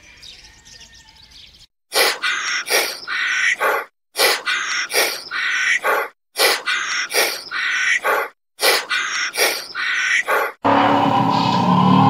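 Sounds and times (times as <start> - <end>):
animal chirping: 2.0 - 10.6.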